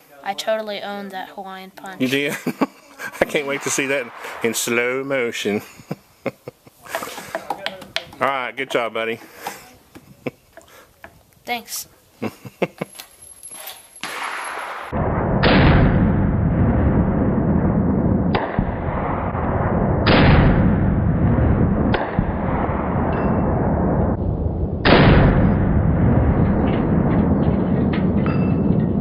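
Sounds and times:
slowed pistol shots booming: 2.5s - 6.2s, 14.0s - 29.0s.

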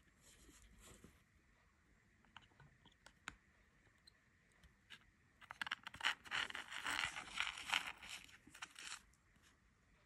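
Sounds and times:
scratchy crackling and ticking: 4.7s - 9.2s.

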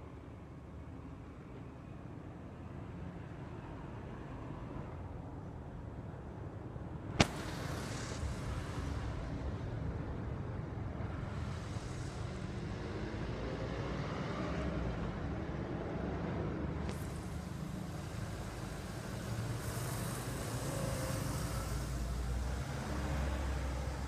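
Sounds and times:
low outdoor rumble: 5.7s - 24.0s
sharp click: 7.2s - 7.5s
faint hiss: 7.2s - 14.0s, 16.8s - 24.0s.

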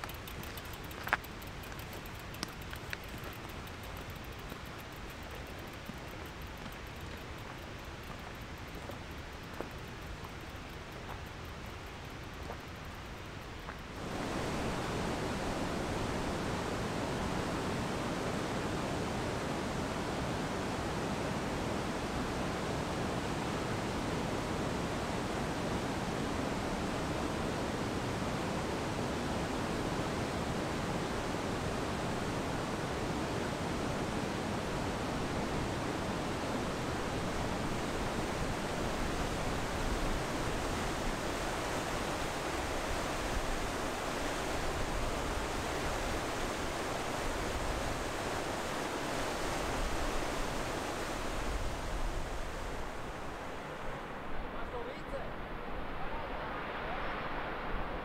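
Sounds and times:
mountain stream rushing over rocks: 13.7s - 57.8s.

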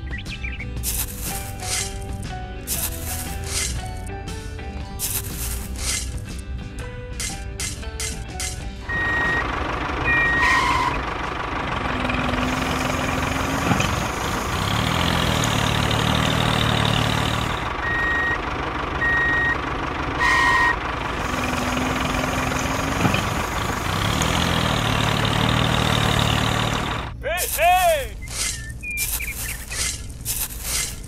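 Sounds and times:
diesel truck engine running: 0.4s - 31.0s
high reversing beeps: 8.8s - 11.1s, 17.8s - 20.8s.

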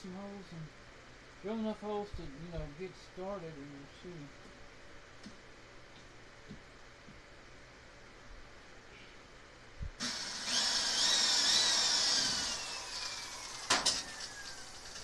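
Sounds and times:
cordless drill whining: 10.0s - 15.0s.

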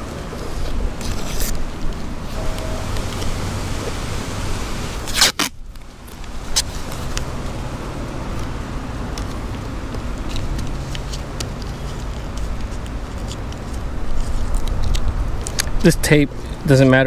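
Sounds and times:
paper tape crackling: 0.0s - 4.2s, 5.0s - 7.4s, 8.2s - 16.7s
masking tape ripping off roll: 0.4s - 2.4s, 5.0s - 7.3s.

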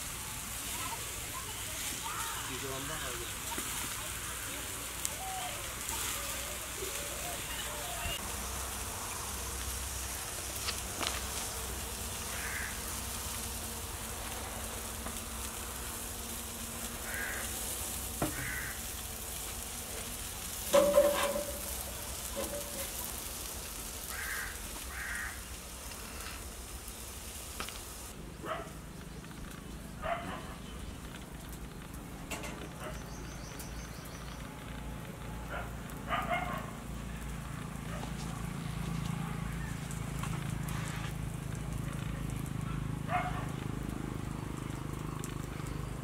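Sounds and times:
meat sizzling on a grill: 0.0s - 46.0s
short bird calls: 12.3s - 12.8s.

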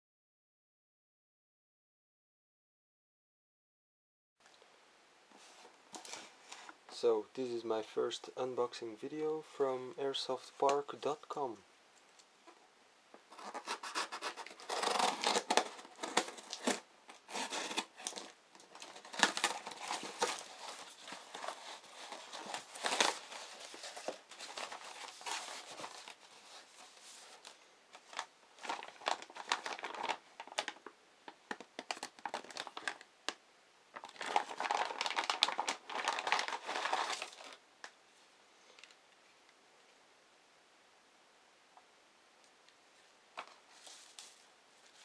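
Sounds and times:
plastic and foam crinkling: 5.3s - 7.1s, 13.3s - 33.1s, 33.9s - 37.6s, 43.4s - 45.0s
cardboard parcel tearing: 13.3s - 30.8s, 31.5s - 33.0s, 34.0s - 37.6s.

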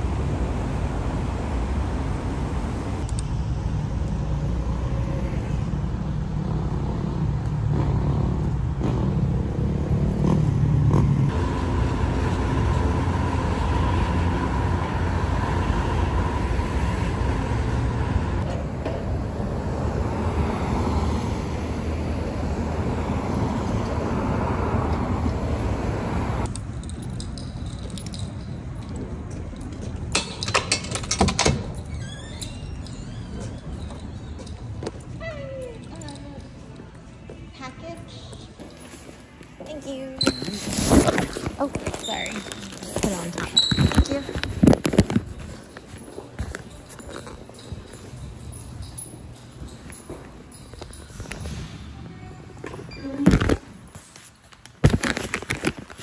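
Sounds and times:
cars passing in steady rumble: 0.0s - 40.1s
keys jangling: 26.5s - 36.9s, 45.4s - 51.8s.

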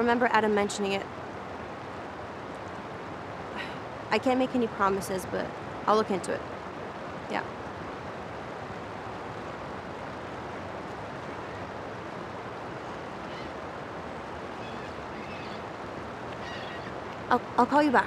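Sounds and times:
distant waterfowl calling: 11.3s - 18.0s.

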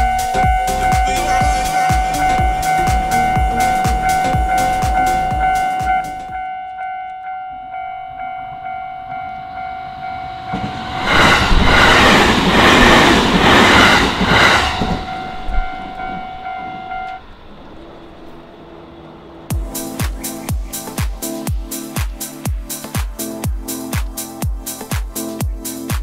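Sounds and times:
level-crossing bell dinging: 0.0s - 11.1s, 14.9s - 17.4s
train passing: 0.0s - 24.9s.

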